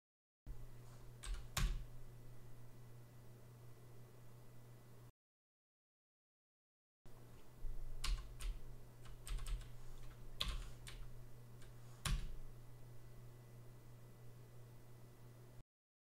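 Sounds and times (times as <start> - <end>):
low steady hum: 0.5 - 5.1, 7.1 - 15.6
keyboard keys clicking: 1.2 - 1.9, 8.0 - 12.4.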